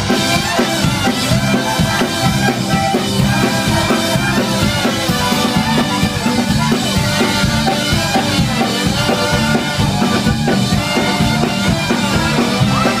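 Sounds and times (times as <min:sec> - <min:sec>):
drum kit steady beat: 0:00.0 - 0:13.0
ska band playing live: 0:00.0 - 0:13.0.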